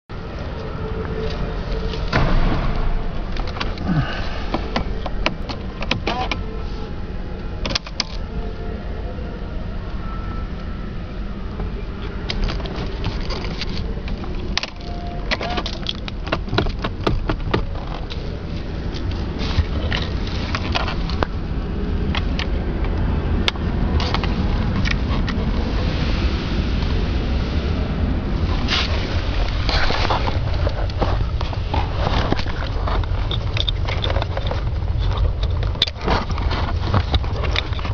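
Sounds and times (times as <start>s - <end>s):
low rumble: 0.1s - 37.9s
hand fumbling with wires: 0.5s - 6.5s, 12.2s - 21.4s, 28.6s - 37.9s.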